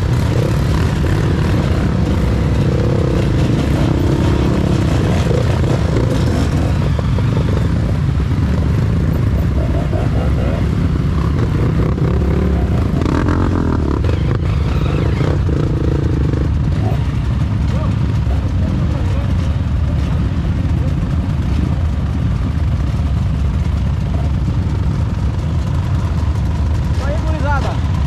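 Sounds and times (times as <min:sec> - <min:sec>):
motorcycle engines revving: 0:00.0 - 0:28.0.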